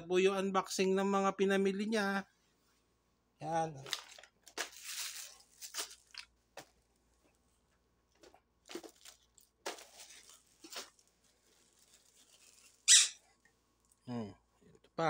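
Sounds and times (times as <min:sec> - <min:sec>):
plastic packaging crinkling: 0:03.8 - 0:07.5, 0:08.1 - 0:14.0.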